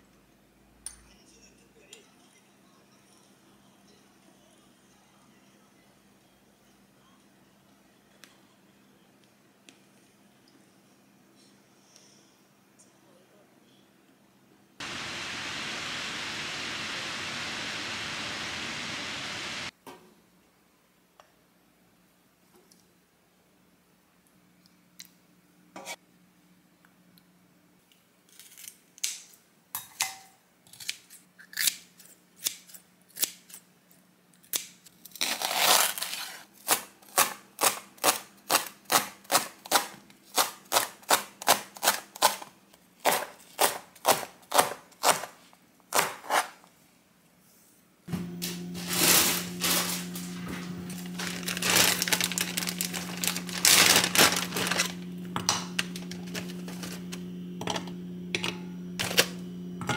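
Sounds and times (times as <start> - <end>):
steady hum: 14.8 - 19.7, 48.1 - 59.9
plastic zip bag crinkling: 48.8 - 55.2.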